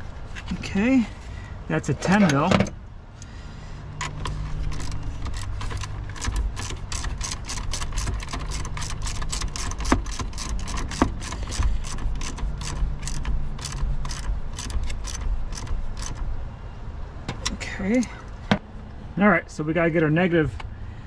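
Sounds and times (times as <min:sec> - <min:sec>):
ratcheting wrench clicking: 0:04.0 - 0:16.3.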